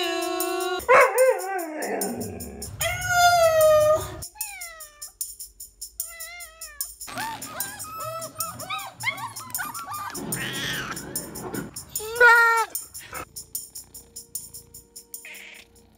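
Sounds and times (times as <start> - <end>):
cats meowing: 2.8 - 5.2, 6.0 - 13.2, 15.2 - 15.8.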